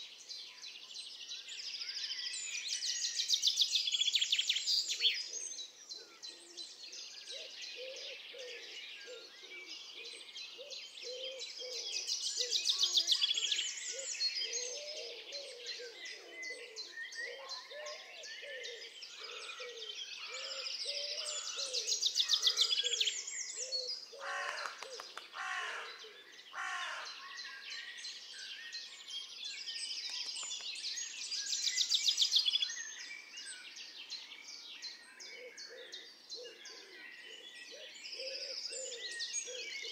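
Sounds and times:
birds chirping and singing: 0.0s - 39.9s
loud bird calls: 4.9s - 28.3s, 34.9s - 39.9s.

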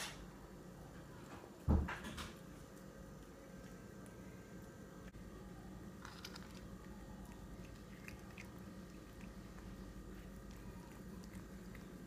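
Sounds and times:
cat crunching dry kibble: 6.0s - 12.0s.

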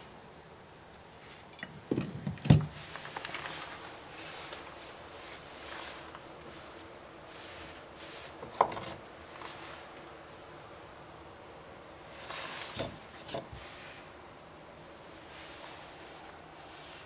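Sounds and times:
handling noise: 1.6s - 10.0s.

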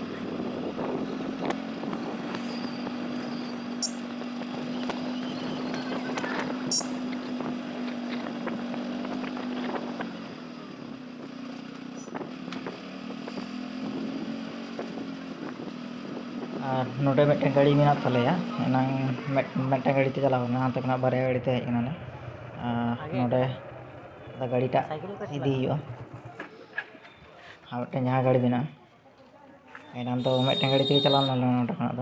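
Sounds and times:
wind noise on microphone: 0.0s - 3.3s
motorcycle engine running: 0.0s - 27.3s.

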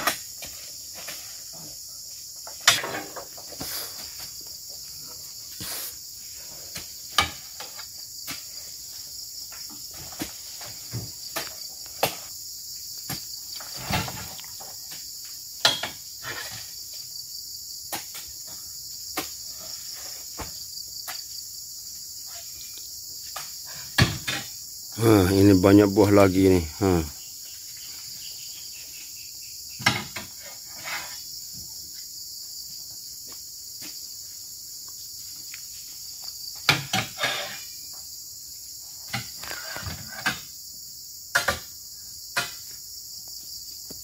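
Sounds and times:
high insect drone: 0.0s - 44.0s.

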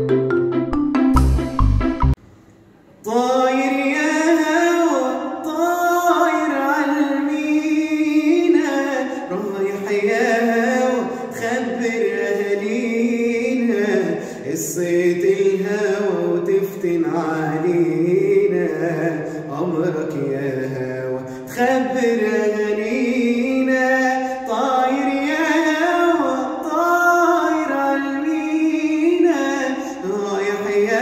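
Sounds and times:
instrumental jingle: 0.0s - 2.2s
young man singing: 3.0s - 31.0s.

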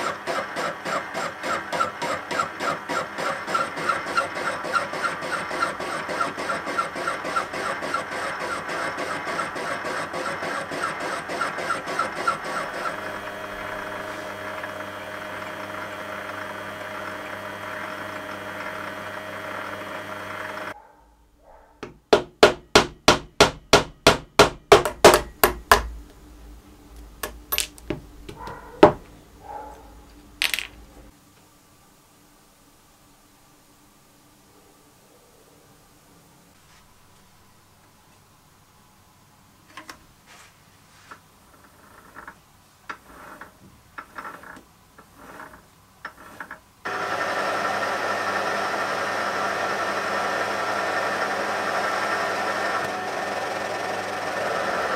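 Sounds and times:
metal lathe cutting steel: 0.0s - 20.8s, 46.9s - 54.9s.

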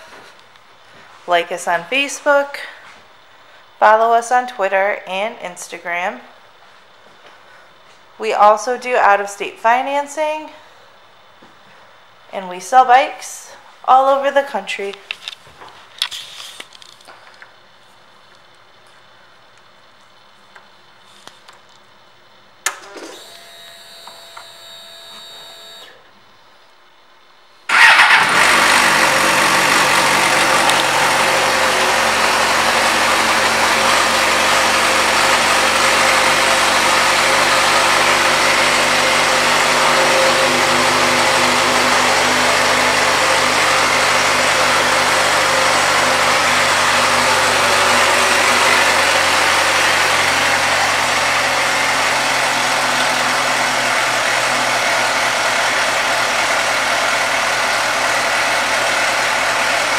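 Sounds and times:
motorcycle engine idling: 27.7s - 59.9s.

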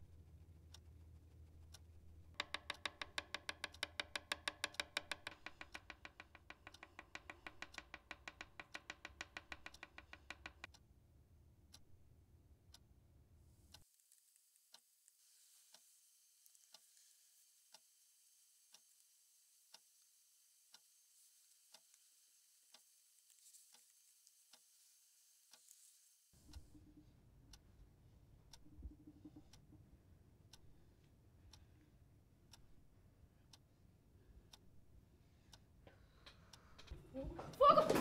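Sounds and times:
clock ticking: 0.0s - 10.9s, 26.4s - 37.7s
pencil tapping on desk: 2.4s - 10.7s
faint hiss: 13.9s - 26.4s.

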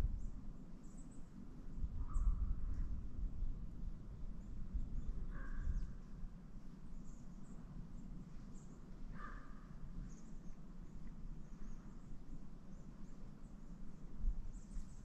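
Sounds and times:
low wind rumble: 0.0s - 15.0s
faint high bird chirps: 0.1s - 2.8s.

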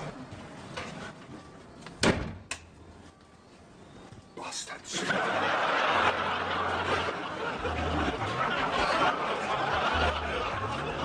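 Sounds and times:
studio audience laughing: 4.9s - 11.0s.

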